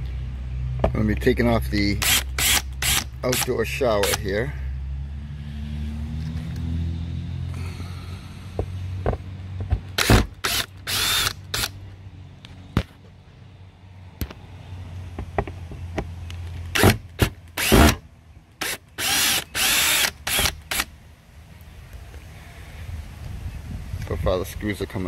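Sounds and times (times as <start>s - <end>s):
drill motor bursts: 2.0s - 4.2s, 10.0s - 11.7s, 16.8s - 18.0s, 18.6s - 20.9s.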